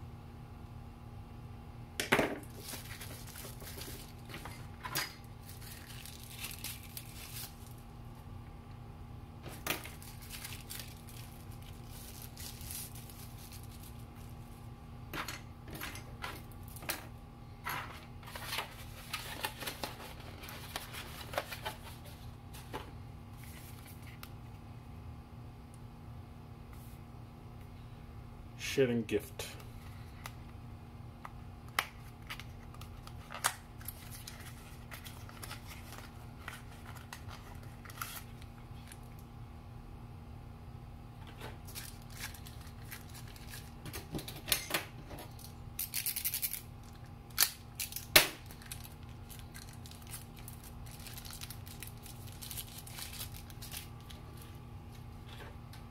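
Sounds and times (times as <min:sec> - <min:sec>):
steady low hum: 0:00.0 - 0:55.9
plastic wrapper crinkling and tearing: 0:02.4 - 0:04.6, 0:05.4 - 0:07.8, 0:09.5 - 0:14.3, 0:31.8 - 0:39.2, 0:41.6 - 0:44.0, 0:45.3 - 0:54.6.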